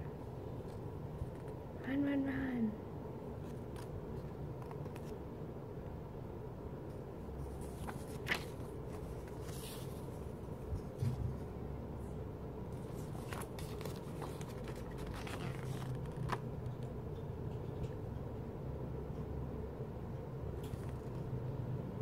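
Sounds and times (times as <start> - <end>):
low background hum: 0.0 - 22.0
paper rustling: 7.4 - 11.2, 12.7 - 16.5.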